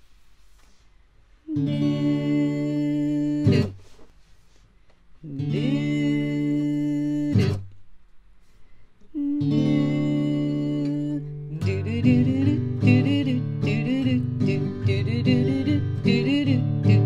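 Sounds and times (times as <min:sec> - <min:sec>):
acoustic guitar strummed chords: 0:01.5 - 0:03.9, 0:05.4 - 0:07.7, 0:09.4 - 0:17.0.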